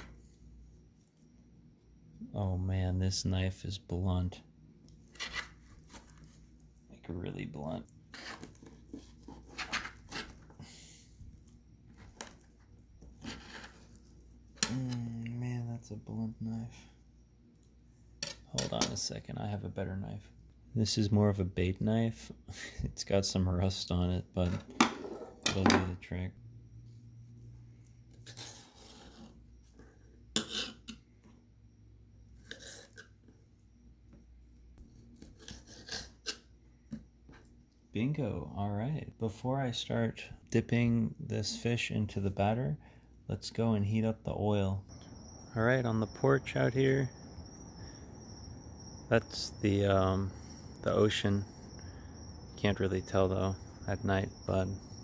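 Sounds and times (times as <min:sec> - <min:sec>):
knife scraping on ceramic tile: 0:13.2 - 0:14.0, 0:28.1 - 0:29.4, 0:30.3 - 0:31.0, 0:32.4 - 0:33.1, 0:35.2 - 0:36.5.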